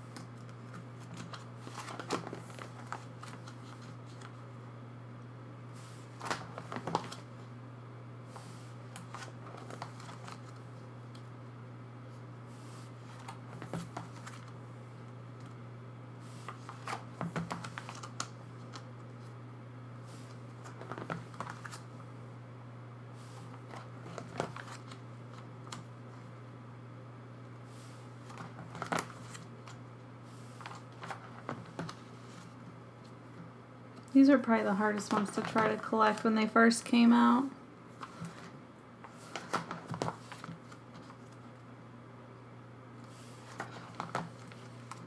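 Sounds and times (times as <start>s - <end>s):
plastic sleeves rustling: 0.0s - 4.4s, 5.8s - 7.3s, 8.3s - 11.2s, 20.1s - 21.9s, 23.2s - 25.8s, 34.7s - 36.3s, 37.9s - 41.5s.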